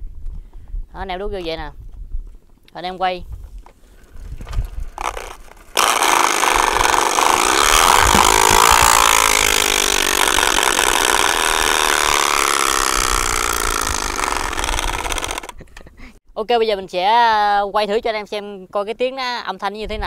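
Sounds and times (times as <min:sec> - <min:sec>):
plastic bottle rattling on wheel: 0:04.0 - 0:15.6.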